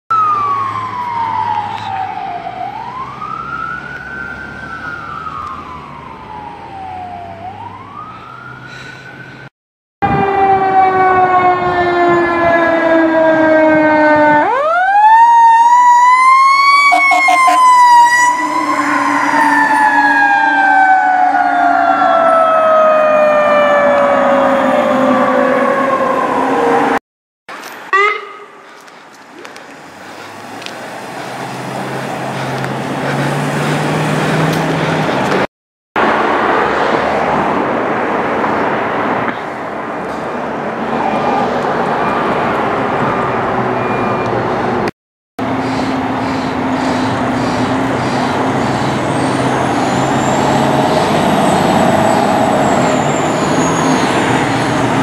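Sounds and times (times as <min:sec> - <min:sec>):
electronic siren wailing: 0:00.1 - 0:09.3, 0:10.0 - 0:27.0, 0:27.9 - 0:28.6, 0:45.5 - 0:55.0.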